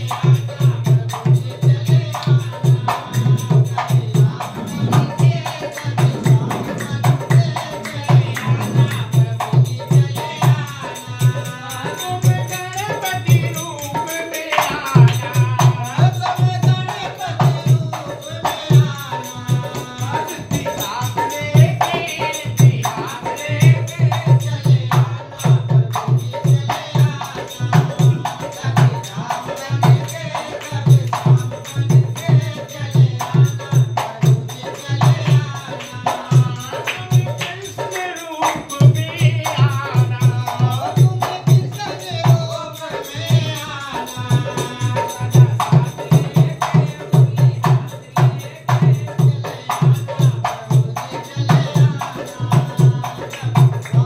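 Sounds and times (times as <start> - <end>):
barrel drum played by hand: 0.0 - 54.0
person singing: 1.1 - 24.4.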